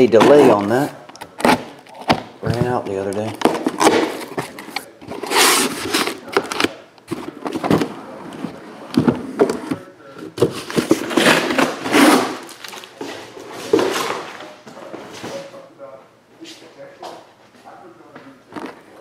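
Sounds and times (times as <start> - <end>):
cardboard scraping against boxes: 0.0 - 2.8, 3.4 - 7.6, 10.4 - 14.3
boxes knocking: 0.0 - 5.2, 9.0 - 12.4.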